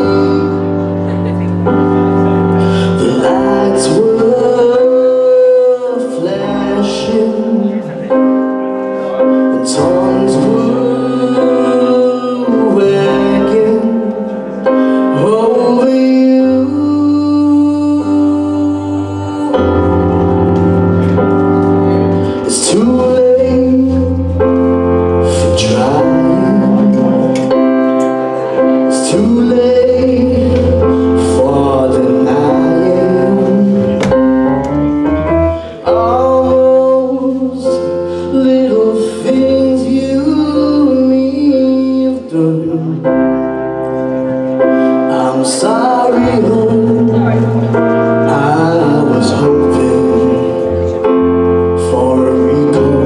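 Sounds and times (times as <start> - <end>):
person singing: 0.0 - 53.0
stage piano chords: 0.0 - 53.0
bass guitar: 18.6 - 37.5.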